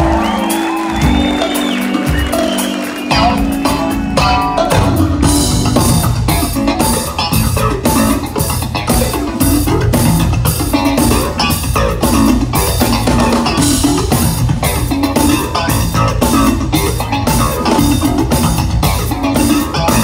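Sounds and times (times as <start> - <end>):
bass guitar: 0.0 - 20.0
live jazz-funk band playing: 0.0 - 20.0.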